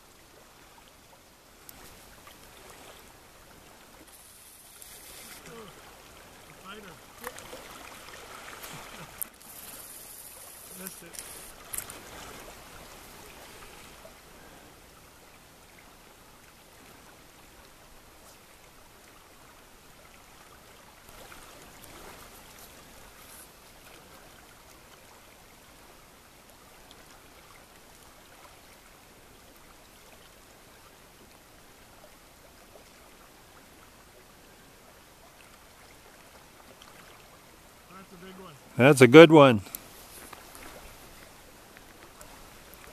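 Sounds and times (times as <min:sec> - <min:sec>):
river current rushing: 0:00.1 - 0:15.6, 0:35.9 - 0:42.9.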